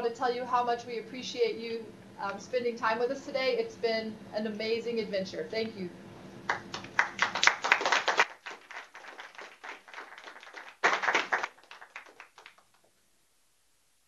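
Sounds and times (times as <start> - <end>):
group of people clapping: 6.5 - 12.9.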